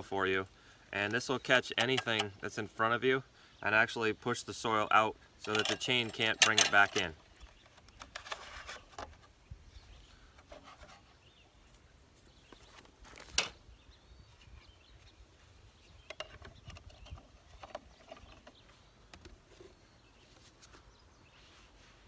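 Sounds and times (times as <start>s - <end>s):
plastic rubbing and clicks: 6.4s - 9.3s.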